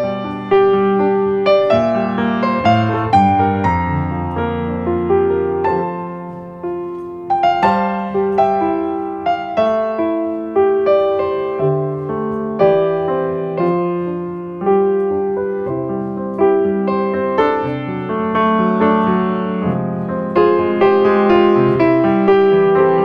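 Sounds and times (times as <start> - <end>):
piano music: 0.0 - 23.0.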